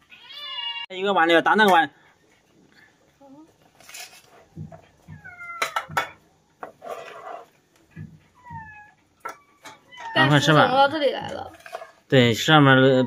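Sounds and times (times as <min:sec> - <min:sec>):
kittens meowing: 0:05.1 - 0:06.0, 0:08.3 - 0:10.7.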